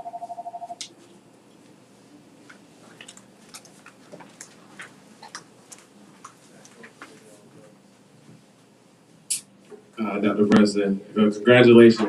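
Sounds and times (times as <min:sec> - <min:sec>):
faint clicks and taps: 0:02.4 - 0:07.3.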